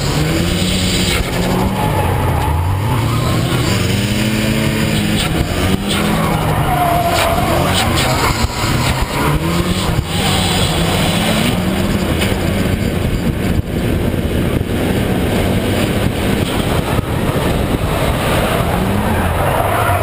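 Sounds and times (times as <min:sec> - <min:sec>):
car engine running hard: 0:00.0 - 0:20.0
wind noise on microphone: 0:10.8 - 0:19.4.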